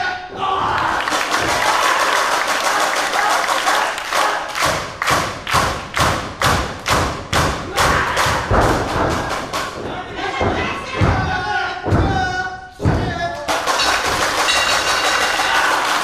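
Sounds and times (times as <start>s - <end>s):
audience clapping: 0.8s - 7.4s, 13.4s - 16.0s.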